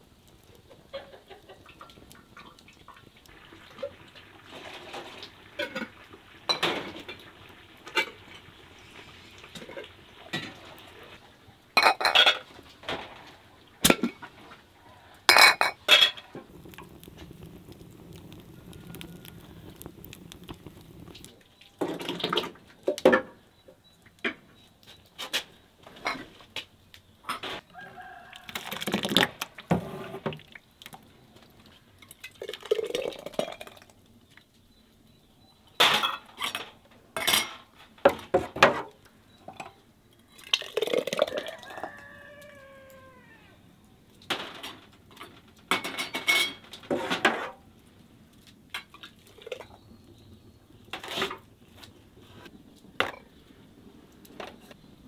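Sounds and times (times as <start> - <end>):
pots and jars clinking: 6.5 - 7.2, 11.8 - 13.1, 15.3 - 16.9, 44.4 - 47.5
rooster crowing: 18.1 - 19.9, 27.6 - 28.8, 41.2 - 43.7.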